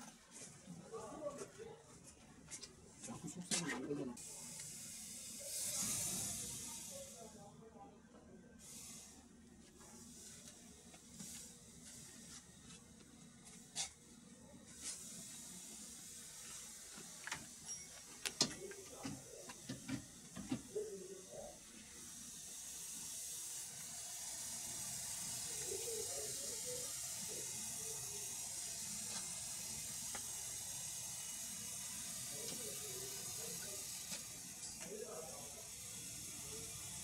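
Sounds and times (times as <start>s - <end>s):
gas hissing from hose connections: 4.2s - 7.5s, 8.6s - 37.0s
hoses clicking and knocking: 17.1s - 20.7s.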